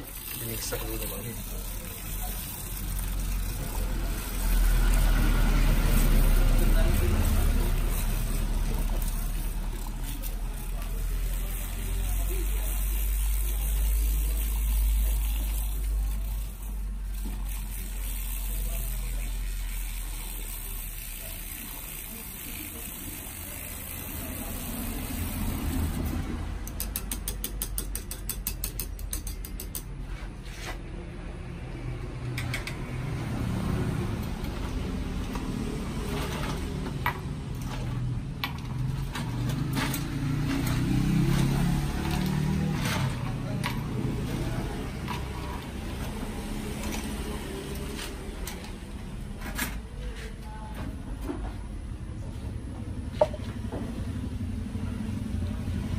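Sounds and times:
milk frother running in metal mug: 0.0 - 26.2.

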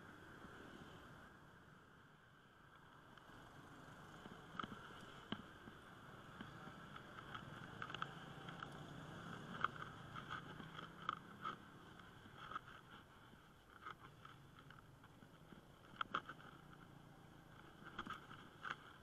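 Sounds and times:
low hum of traffic: 0.0 - 19.0
bicycle clicks and rattles: 2.7 - 19.0.

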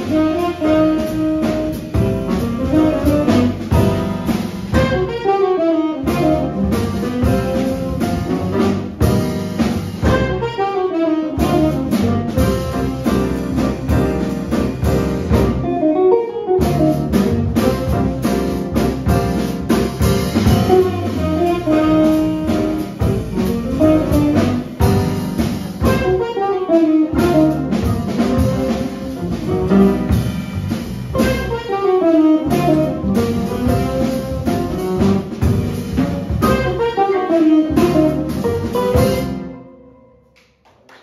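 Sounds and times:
saxophone: 0.0 - 4.0, 4.8 - 9.0, 10.0 - 13.2, 15.6 - 18.2, 20.5 - 25.2, 25.8 - 29.4, 31.2 - 35.4, 36.0 - 39.8
small jazz band playing: 0.0 - 40.6
piano: 0.0 - 41.0.

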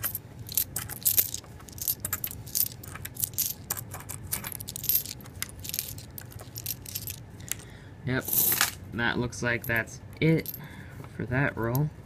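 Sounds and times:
coins clinking together: 0.0 - 7.2.

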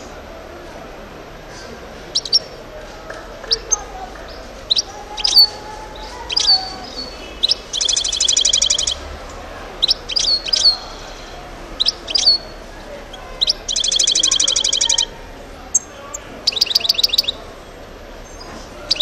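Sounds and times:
goldfinch calling: 2.1 - 2.6, 3.4 - 9.1, 9.8 - 17.5, 18.2 - 19.0
rapid buzzy bird trill: 4.6 - 9.1, 9.8 - 15.1, 15.7 - 17.5.

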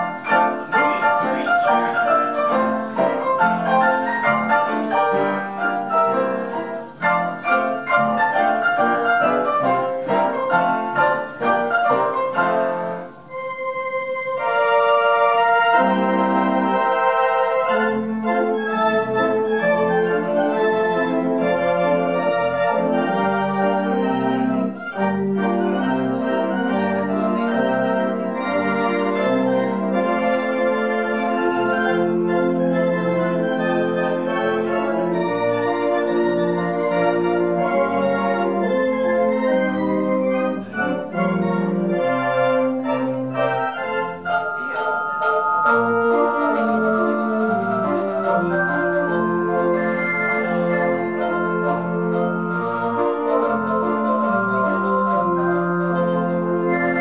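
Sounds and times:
pipe organ chords: 0.0 - 57.0
player piano playing quick notes: 0.0 - 57.0.

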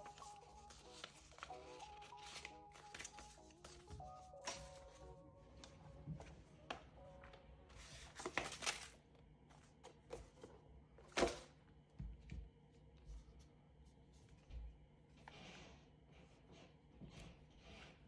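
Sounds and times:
cardboard packaging rustling: 0.0 - 5.0, 7.8 - 9.0.

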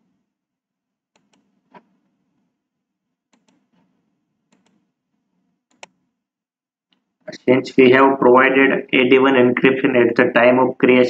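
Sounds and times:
computer mouse clicks: 1.2 - 1.9, 3.3 - 3.9, 4.5 - 4.9, 5.7 - 6.0.

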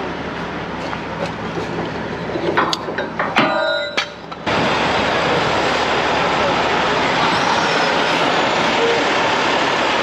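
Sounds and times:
heavy machinery running: 4.0 - 10.0.

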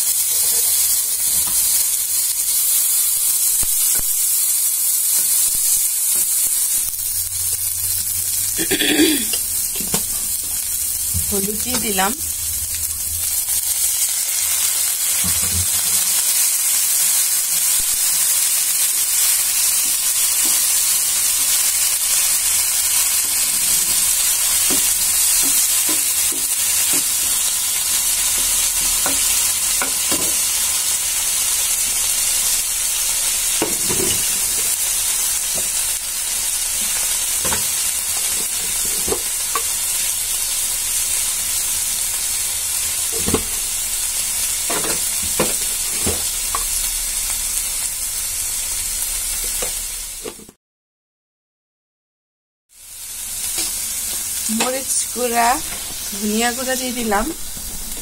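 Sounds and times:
food sizzling in hot oil: 0.0 - 50.5, 52.7 - 58.0.

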